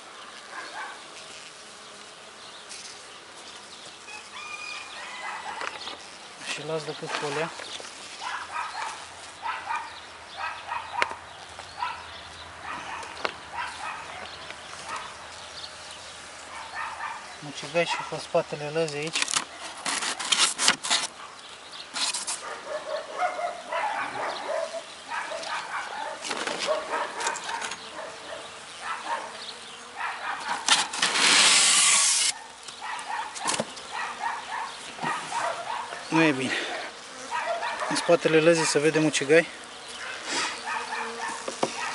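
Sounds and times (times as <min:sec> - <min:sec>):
dog barking: 0:00.5 - 0:01.0, 0:05.2 - 0:05.7, 0:08.2 - 0:11.2, 0:11.8 - 0:14.3, 0:14.9 - 0:15.2, 0:16.5 - 0:18.2, 0:22.4 - 0:30.9, 0:32.3 - 0:36.1, 0:37.2 - 0:38.8, 0:40.6 - 0:41.9
insulation board scraping on wood: 0:19.1 - 0:21.2, 0:22.0 - 0:22.6, 0:30.4 - 0:32.4.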